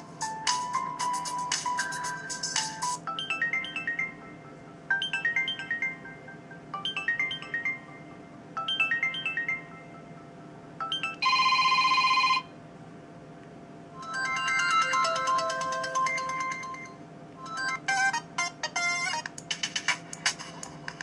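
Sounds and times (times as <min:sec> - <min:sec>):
ringtone chime notes: 0:00.0 - 0:12.5, 0:14.0 - 0:19.3
phone buzzing tone: 0:02.8 - 0:12.5.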